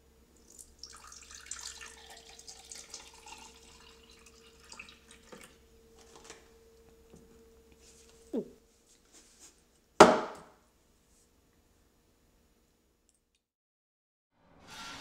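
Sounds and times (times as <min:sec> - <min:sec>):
milk pouring into a glass: 0:00.4 - 0:05.6.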